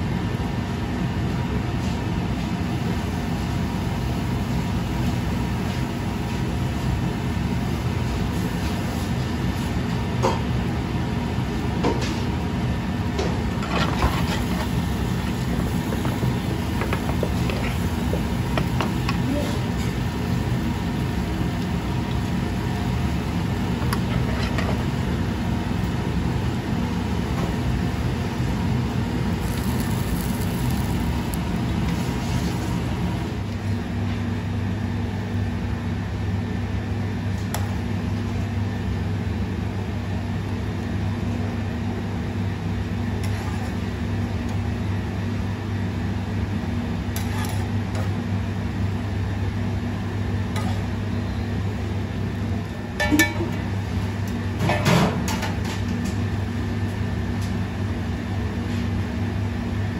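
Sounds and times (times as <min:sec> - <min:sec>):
kitchen mechanical hum: 0:00.0 - 0:59.9
metal spoon clinking on pans: 0:53.0 - 0:53.5.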